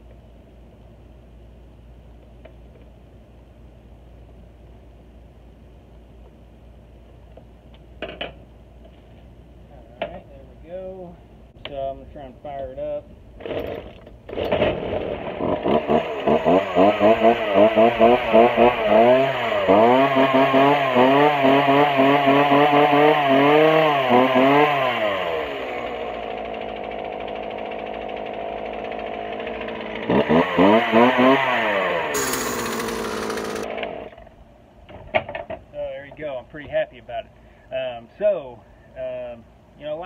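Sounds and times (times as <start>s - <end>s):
chainsaw engine revving and idling: 13.4s - 34.2s.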